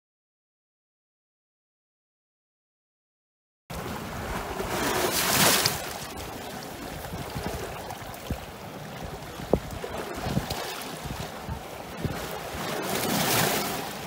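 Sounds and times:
lake waves splashing on rocks: 0:03.7 - 0:14.0
wind rumbling on microphone: 0:03.7 - 0:14.0.

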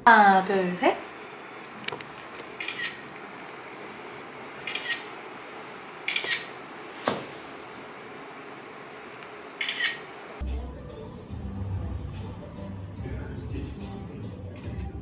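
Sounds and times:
camera shutter clicks: 0:02.4 - 0:03.0, 0:04.7 - 0:05.1, 0:06.1 - 0:06.5, 0:09.6 - 0:10.0.

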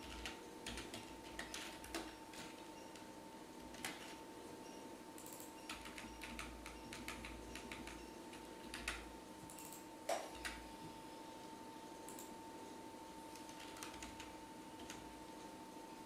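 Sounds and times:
keyboard typing: 0:00.0 - 0:04.2, 0:05.2 - 0:10.7, 0:12.1 - 0:12.4, 0:13.3 - 0:15.1
faint electrical hum: 0:00.0 - 0:16.0.

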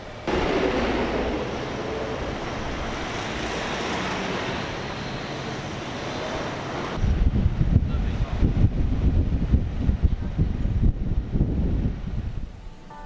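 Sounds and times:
road traffic passing: 0:00.0 - 0:08.4.

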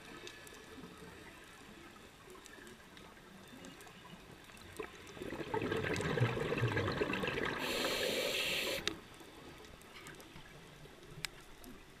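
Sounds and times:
faint clicks: 0:00.0 - 0:05.2, 0:08.0 - 0:12.0
underwater background: 0:00.0 - 0:12.0
exhaled bubbles burbling: 0:04.7 - 0:08.8
regulator hiss: 0:07.5 - 0:09.0.

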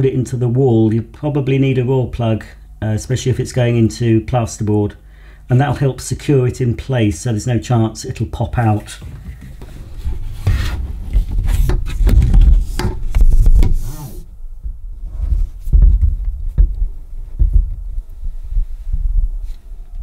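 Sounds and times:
plastic hoses rubbing and rustling: 0:08.8 - 0:14.3
heavy low thumps: 0:09.9 - 0:19.5.

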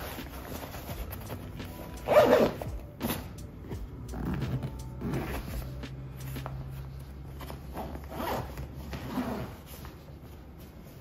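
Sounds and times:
zipper being pulled: 0:00.2 - 0:03.2, 0:04.1 - 0:05.8, 0:07.3 - 0:10.0.

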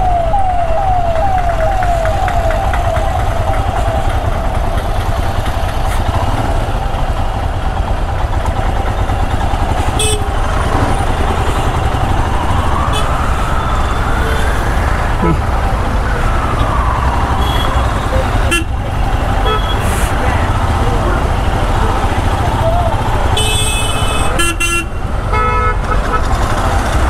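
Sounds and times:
electronic siren whooping: 0:00.0 - 0:05.9, 0:11.0 - 0:23.4
city traffic rumble: 0:00.0 - 0:27.0
motorcycle engines: 0:00.0 - 0:27.0.

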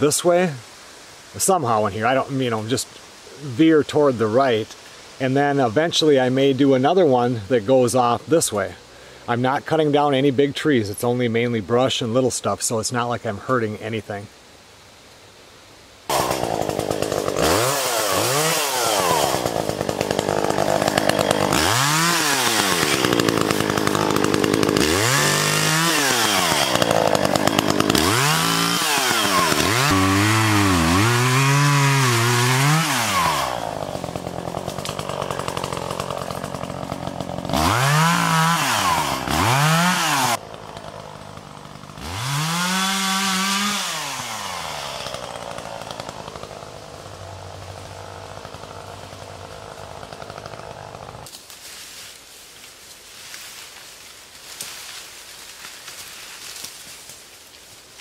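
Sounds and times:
chainsaw revving and idling: 0:16.1 - 0:51.4.

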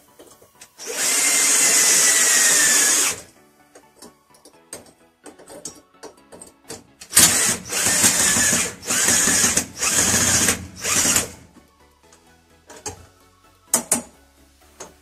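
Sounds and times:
power tool running in bursts: 0:00.8 - 0:03.3, 0:07.2 - 0:11.5.

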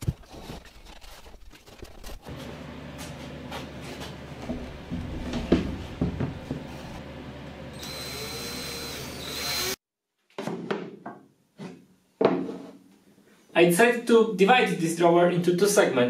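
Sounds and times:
wooden drawer knocking: 0:04.5 - 0:06.7
cordless drill whining: 0:07.7 - 0:09.8.

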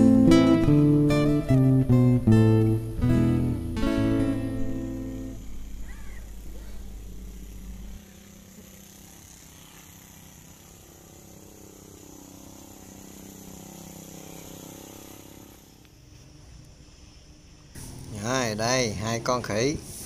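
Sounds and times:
brush cutter engine running: 0:00.0 - 0:15.9.

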